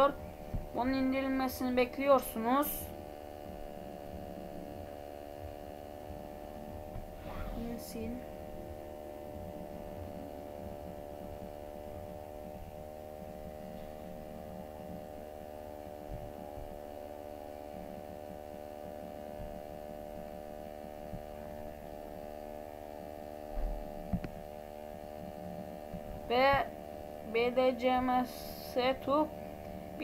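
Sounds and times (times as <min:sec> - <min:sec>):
electrical hum: 0:00.0 - 0:30.0.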